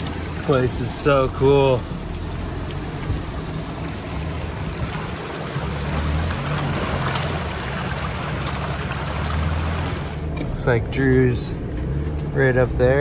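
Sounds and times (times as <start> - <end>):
river water rushing over rocks: 2.5 - 10.2.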